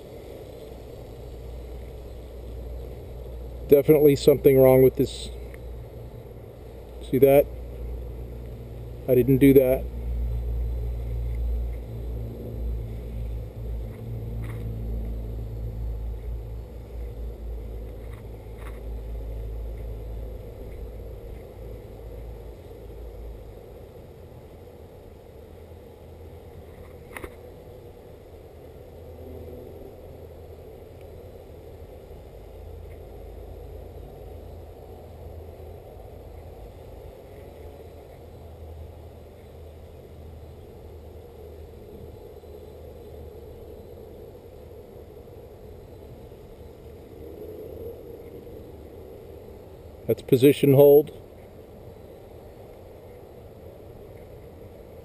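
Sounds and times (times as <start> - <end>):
drone propellers humming: 0.0 - 55.0
low rumble: 4.4 - 24.0.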